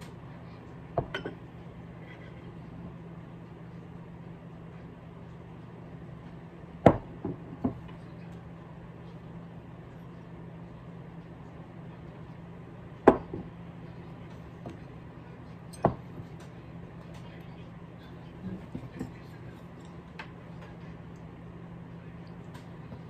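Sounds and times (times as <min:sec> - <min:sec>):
ceramic dish knocking on wooden table: 0:01.0 - 0:01.4.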